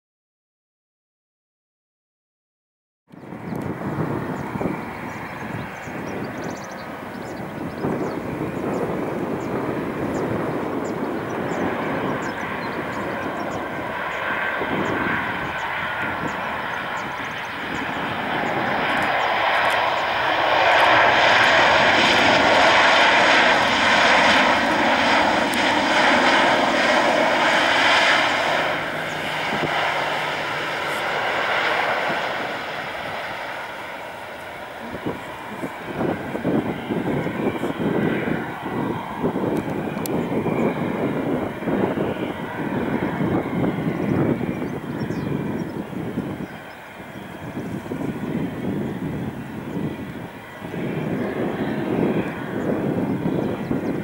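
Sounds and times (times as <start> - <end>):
jet engines landing: 3.1 - 54.0
jet engines reverse thrust whine: 3.1 - 54.0.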